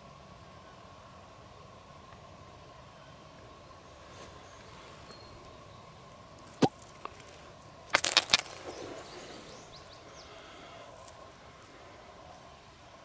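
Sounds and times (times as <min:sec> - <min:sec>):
pebbles clicking and scraping: 0:06.4 - 0:09.2
stones clattering: 0:06.5 - 0:09.1.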